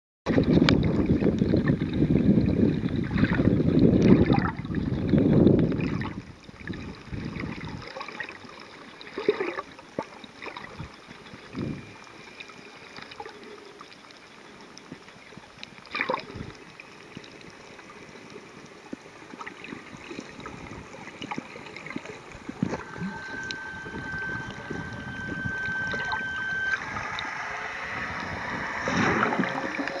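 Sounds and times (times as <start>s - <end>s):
water churning and sloshing: 0.3s - 30.0s
faint steady tone: 6.0s - 30.0s
muffled underwater hiss: 6.6s - 30.0s
underwater clicks and knocks: 21.1s - 26.8s.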